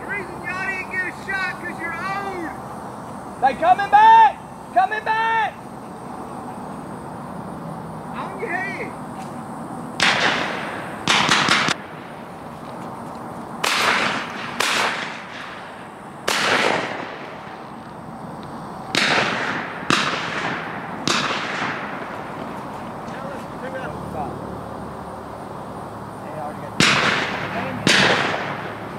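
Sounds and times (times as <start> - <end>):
shotgun blasts with echo: 10.0 - 12.1, 13.6 - 17.6, 18.9 - 22.4, 26.8 - 28.9.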